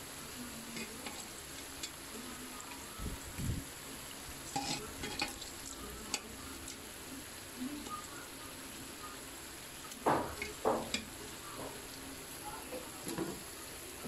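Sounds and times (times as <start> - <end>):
meat sizzling in a wok: 0.0 - 14.0
utensil scraping a pan: 0.6 - 2.0, 4.5 - 5.4.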